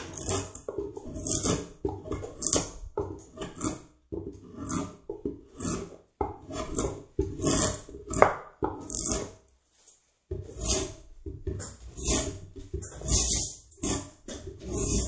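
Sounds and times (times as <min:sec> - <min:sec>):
edge tool shaving wood: 0:00.0 - 0:09.4, 0:10.3 - 0:15.0.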